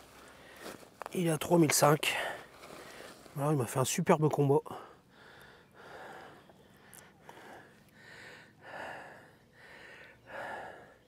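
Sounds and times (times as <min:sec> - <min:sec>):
man breathing: 0:00.1 - 0:00.8, 0:02.1 - 0:03.3, 0:04.7 - 0:11.0.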